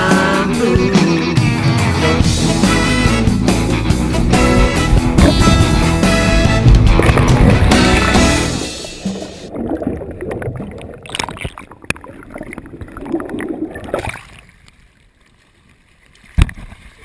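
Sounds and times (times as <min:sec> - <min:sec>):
background music: 0:00.0 - 0:09.5
water sloshing and splashing: 0:03.5 - 0:17.0.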